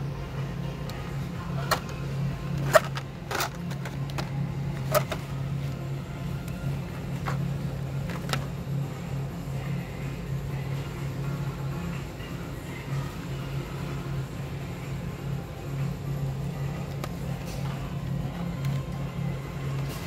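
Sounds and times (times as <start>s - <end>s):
steady low hum: 0.0s - 20.0s
plastic packs clacking: 2.6s - 5.3s.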